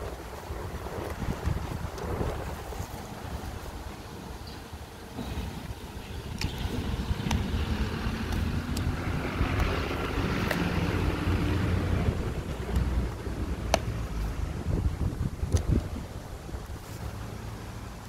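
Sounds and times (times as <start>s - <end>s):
wind rumbling on microphone: 0.0s - 18.0s
dog gnawing stick clicks: 8.2s - 9.8s, 10.4s - 10.8s.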